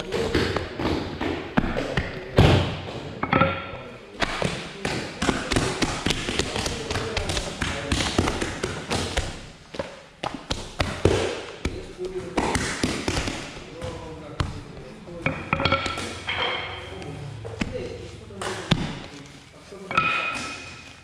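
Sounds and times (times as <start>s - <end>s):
people talking: 0.0s - 1.0s, 1.6s - 9.0s, 10.9s - 20.6s
hands slapping dough: 4.2s - 14.6s.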